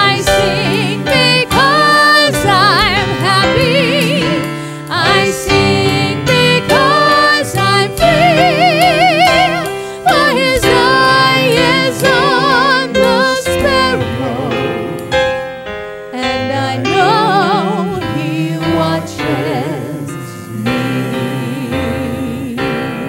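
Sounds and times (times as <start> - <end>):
person singing gospel: 0.0 - 15.2, 16.1 - 23.0
piano accompaniment: 0.0 - 23.0.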